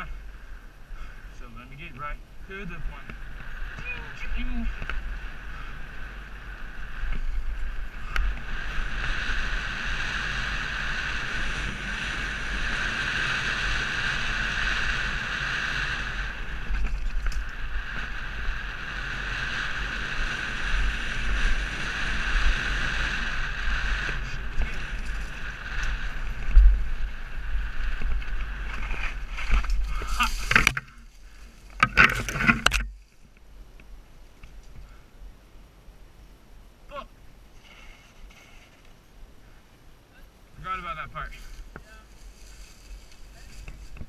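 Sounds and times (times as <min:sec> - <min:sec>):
bike knocking and rattling: 0:16.6 - 0:18.2, 0:27.8 - 0:33.4
tyres rolling on dirt: 0:22.9 - 0:34.9, 0:37.4 - 0:39.1.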